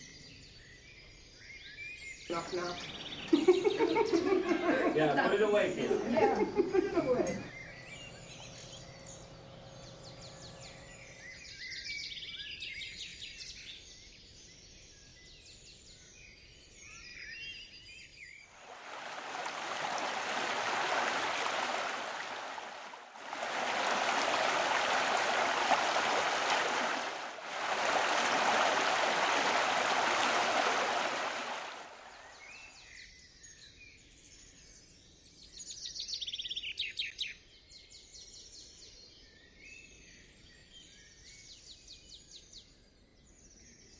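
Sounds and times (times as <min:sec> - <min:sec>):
loud steady rushing noise: 0:18.6 - 0:32.2.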